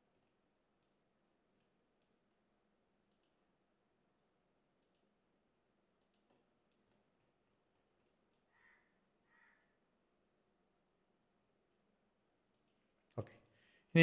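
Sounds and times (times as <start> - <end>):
faint computer mouse clicks: 3.1 - 3.4, 4.8 - 5.2, 6.0 - 6.9, 12.5 - 13.3.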